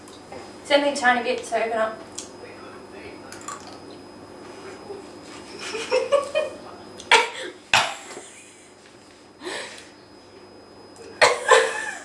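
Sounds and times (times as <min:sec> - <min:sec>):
woman coughing: 0:07.1 - 0:08.0, 0:11.2 - 0:12.0.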